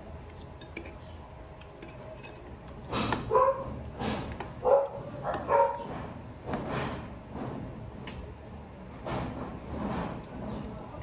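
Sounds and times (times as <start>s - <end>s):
dog barking: 3.3s - 3.8s, 4.6s - 5.9s.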